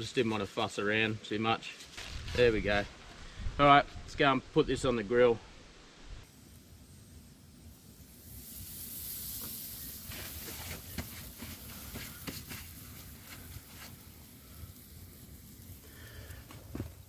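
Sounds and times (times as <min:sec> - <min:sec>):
fat and wood crackling: 0:00.0 - 0:05.0, 0:05.8 - 0:17.0
steak sizzling on a grill: 0:06.3 - 0:17.0.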